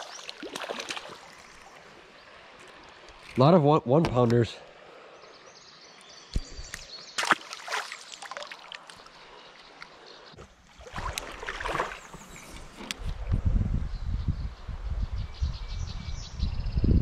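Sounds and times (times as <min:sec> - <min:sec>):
creek water trickling and splashing: 0:00.0 - 0:13.4.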